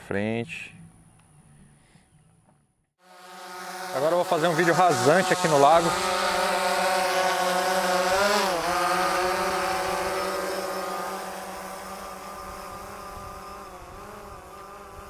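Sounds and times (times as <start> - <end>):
drone propellers whining: 3.1 - 15.0.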